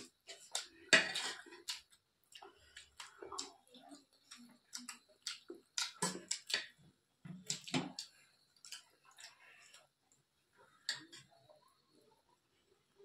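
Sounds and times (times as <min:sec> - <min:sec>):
chewing and mouth sounds: 0:00.0 - 0:06.8, 0:07.4 - 0:09.9.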